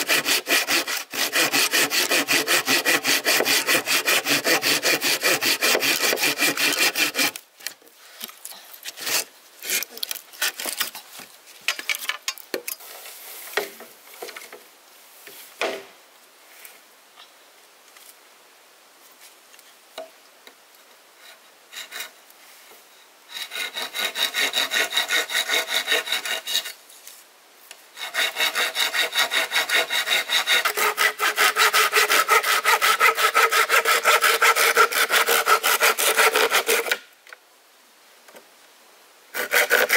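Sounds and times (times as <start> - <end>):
hand saw cutting wood: 0.0 - 7.4, 8.9 - 10.9, 21.3 - 22.2, 23.3 - 26.8, 28.0 - 37.1, 39.3 - 39.9.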